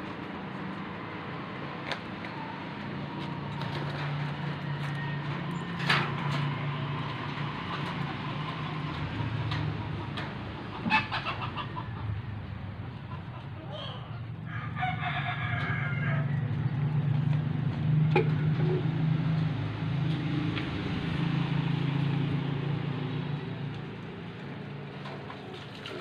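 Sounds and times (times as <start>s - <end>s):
rooster crowing: 4.5s - 5.7s, 13.7s - 16.7s
low motor hum: 15.4s - 26.0s.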